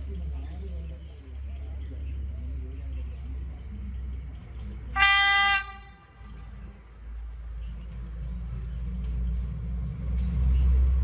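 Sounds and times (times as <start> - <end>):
high-pitched train horn blast: 5.0 - 6.5.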